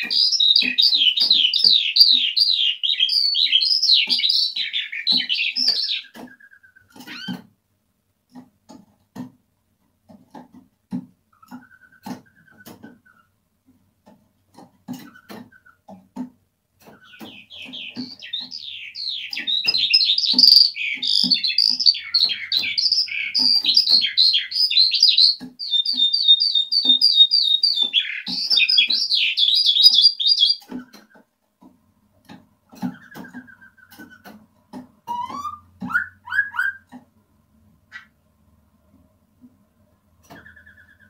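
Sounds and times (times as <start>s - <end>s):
skylark singing: 0.0s - 6.6s, 17.0s - 31.0s.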